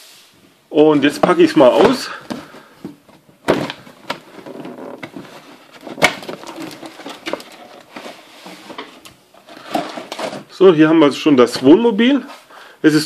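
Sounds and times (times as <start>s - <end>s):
cardboard box rustling and scraping: 3.5s - 10.5s.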